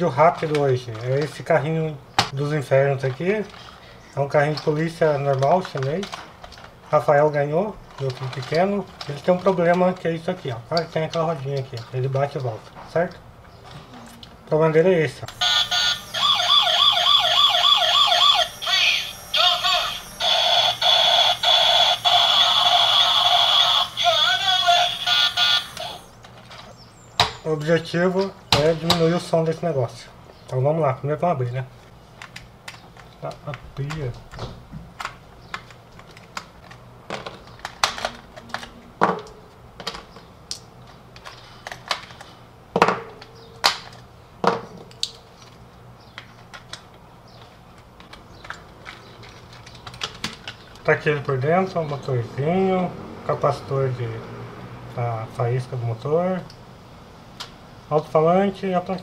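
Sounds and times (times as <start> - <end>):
toy electronic siren: 15.3 - 26.2.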